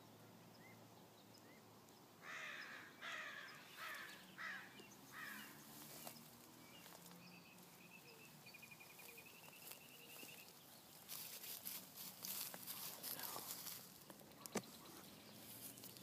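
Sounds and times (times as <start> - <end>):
goats rustling on straw: 5.7 - 7.9, 8.8 - 16.0.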